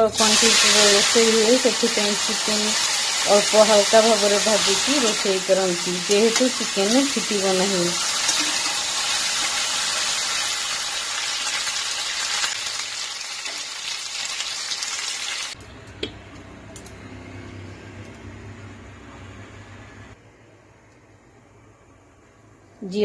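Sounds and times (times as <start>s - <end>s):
chicken sizzling in oil: 0.1s - 15.6s.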